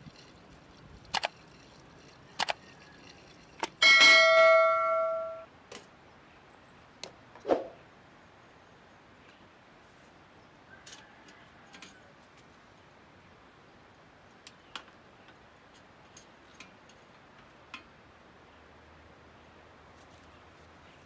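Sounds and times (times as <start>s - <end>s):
metal parts clicking and knocking: 0.0s - 5.4s
ringing metallic clang: 3.8s - 5.5s.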